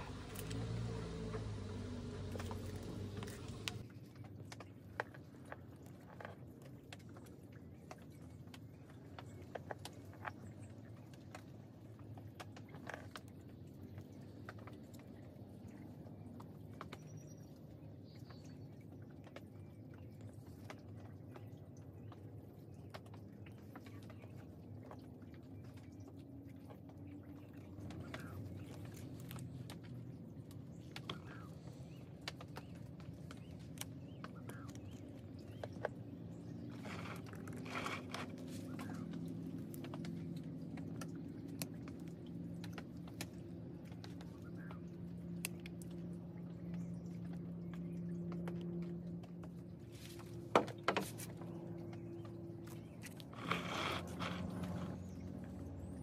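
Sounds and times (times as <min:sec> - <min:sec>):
wire clicks and rustles: 0:00.0 - 0:03.8, 0:32.2 - 0:44.3, 0:52.3 - 0:55.0.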